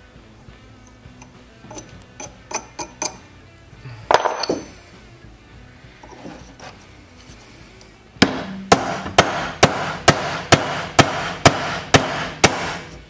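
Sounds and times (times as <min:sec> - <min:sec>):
hammer striking steel punch: 0:08.2 - 0:13.0.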